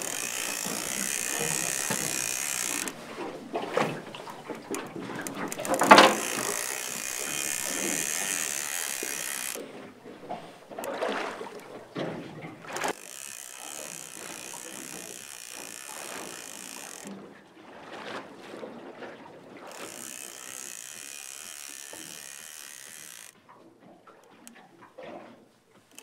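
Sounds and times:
fishing reel buzzing and clicking: 0.0s - 9.7s, 12.6s - 17.2s, 19.7s - 23.4s.

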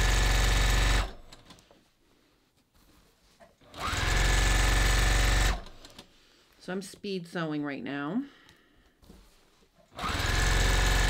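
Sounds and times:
sewing machine stitching: 0.0s - 1.7s, 3.6s - 6.1s, 9.9s - 11.0s.

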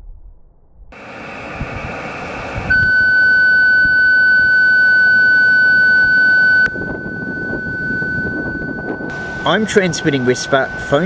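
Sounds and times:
steady whistle-like beacon tone: 2.7s - 11.0s.

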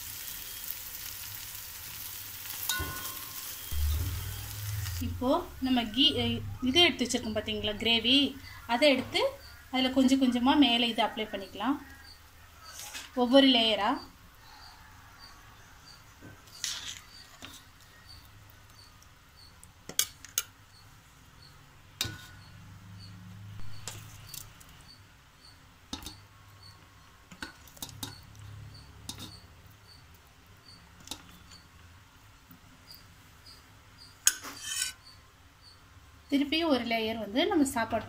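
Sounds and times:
spoon clinking against metal pot: 2.6s - 4.1s
low steady hum: 2.6s - 10.8s.

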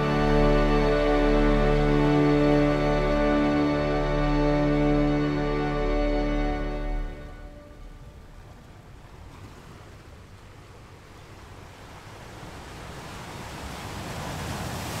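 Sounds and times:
ocean surf washing on shore: 7.6s - 15.0s.

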